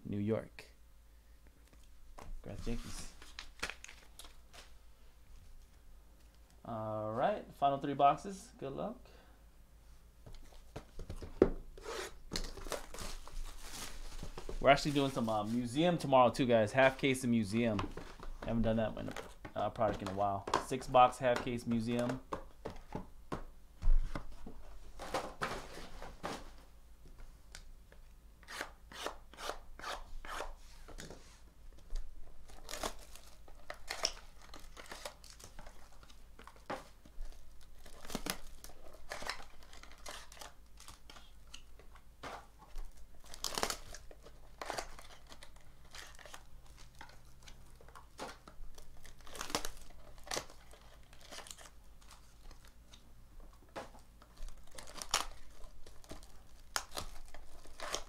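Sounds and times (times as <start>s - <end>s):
foil and plastic crinkling: 12.4s - 15.8s, 42.3s - 52.8s, 54.2s - 58.0s.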